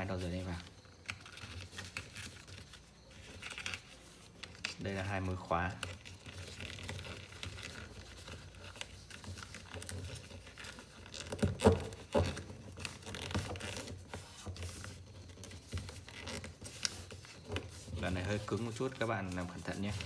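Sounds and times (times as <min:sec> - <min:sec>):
paper rustling and crinkling: 0:00.0 - 0:20.0.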